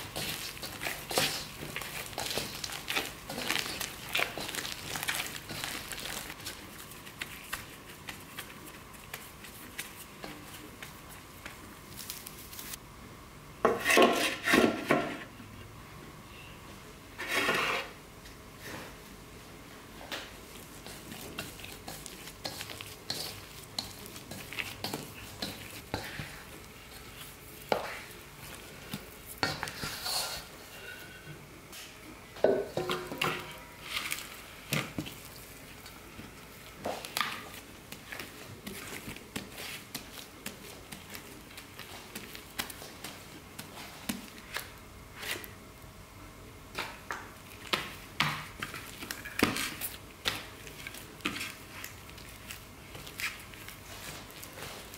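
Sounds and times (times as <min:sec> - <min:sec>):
hands squishing sticky dough: 0:00.0 - 0:12.8, 0:20.4 - 0:30.1, 0:33.8 - 0:45.6, 0:46.7 - 0:54.9
spatula scraping dough off bowl: 0:17.2 - 0:18.0.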